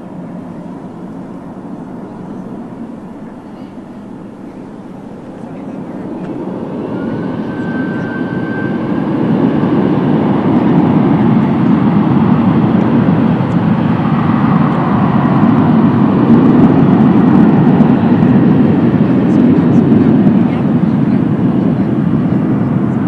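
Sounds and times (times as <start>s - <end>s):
thin high whine: 0.0s - 18.4s
jet engine roar: 0.0s - 23.0s.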